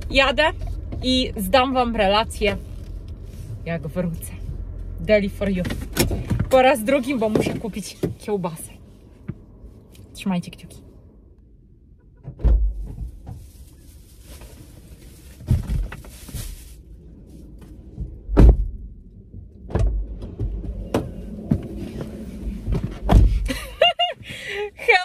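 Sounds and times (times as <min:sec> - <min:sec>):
car door opening and shutting: 0:05.4 - 0:08.4, 0:12.0 - 0:13.4, 0:17.6 - 0:24.4
rustling against car seat: 0:12.6 - 0:19.0, 0:19.9 - 0:24.4.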